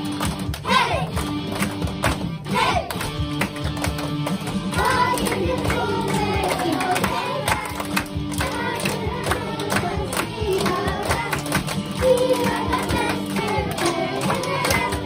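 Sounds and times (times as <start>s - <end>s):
backing music: 0.0s - 15.0s
children clapping in time: 0.0s - 15.0s
children singing: 4.8s - 15.0s.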